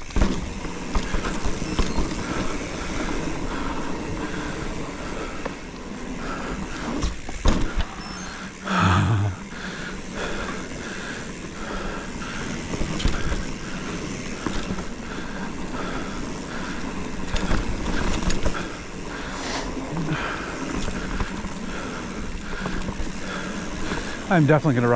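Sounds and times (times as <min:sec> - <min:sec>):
bike rattling over bumps: 0:00.0 - 0:08.6, 0:09.4 - 0:24.9
bike tyres rolling on dirt: 0:00.0 - 0:24.9.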